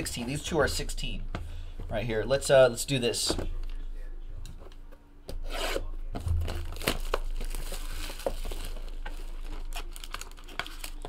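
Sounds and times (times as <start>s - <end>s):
packaging crinkling and tearing: 6.3s - 11.0s.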